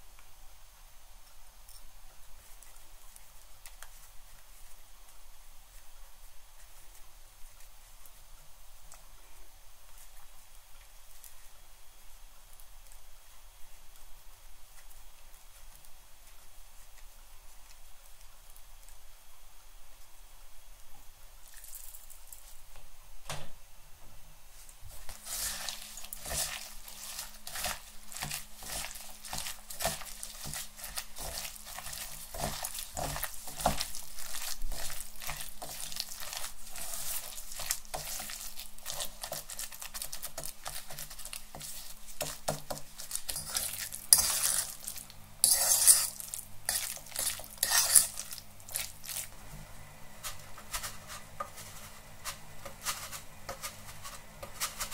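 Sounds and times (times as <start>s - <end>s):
hands squelching wet mixture: 25.0s - 49.4s
fork scraping and clinking bowl: 25.2s - 39.6s, 40.3s - 49.2s.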